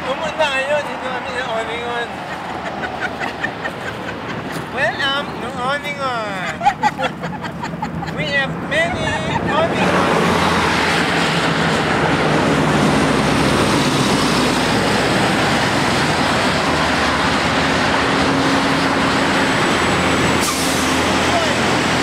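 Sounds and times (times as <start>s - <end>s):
highway traffic rushing: 0.0s - 22.0s
truck engine hum: 0.0s - 22.0s.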